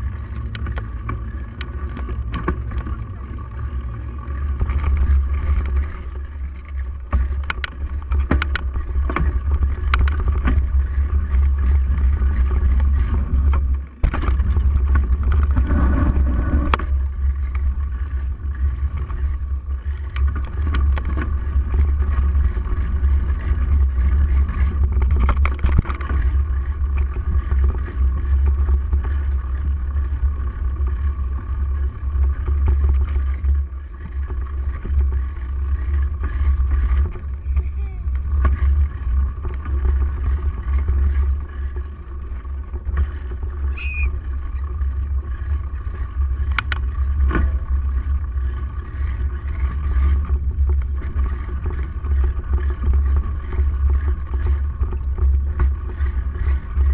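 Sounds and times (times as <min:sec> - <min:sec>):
bike knocks and rattles: 0:00.0 - 0:44.0
wind rumble on camera: 0:00.0 - 0:56.9.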